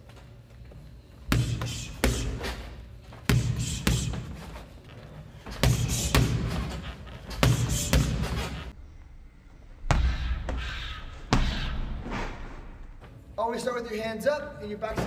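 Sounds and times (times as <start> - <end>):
boxing gloves smacking mitts: 1.3 - 4.7, 5.4 - 8.7.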